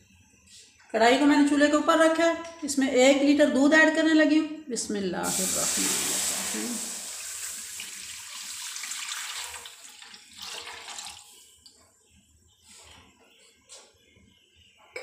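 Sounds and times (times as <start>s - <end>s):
milk pouring and splashing: 5.4s - 11.5s.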